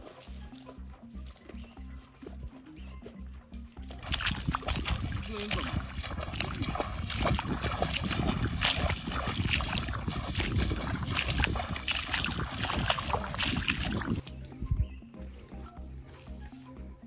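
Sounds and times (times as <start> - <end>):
feet splashing in water: 3.8 - 14.3.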